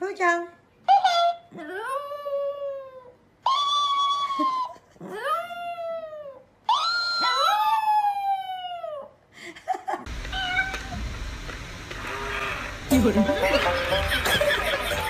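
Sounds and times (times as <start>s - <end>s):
dog yelping: 0.9s - 9.1s.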